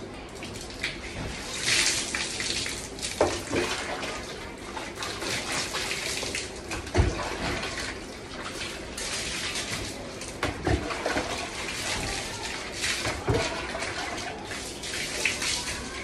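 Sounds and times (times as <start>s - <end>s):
water splashing onto hard floor: 0.4s - 16.0s.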